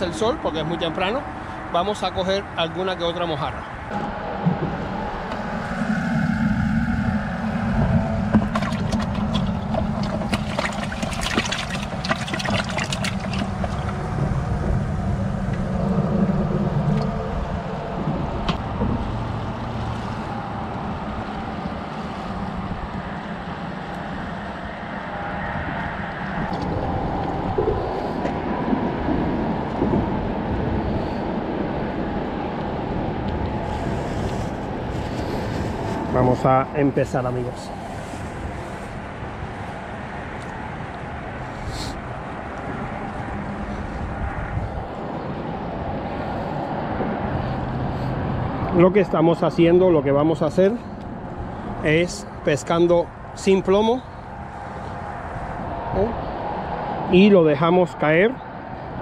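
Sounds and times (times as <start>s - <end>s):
steady low rumble: 0.0s - 57.1s
air hose bubbling in water: 6.9s - 14.7s
water lapping on rocky shore: 8.4s - 14.2s.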